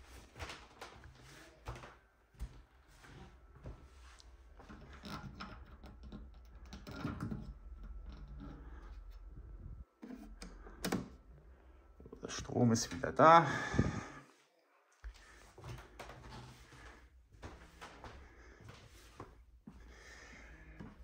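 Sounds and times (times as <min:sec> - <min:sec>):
footsteps: 0:00.0 - 0:04.9, 0:15.0 - 0:21.0.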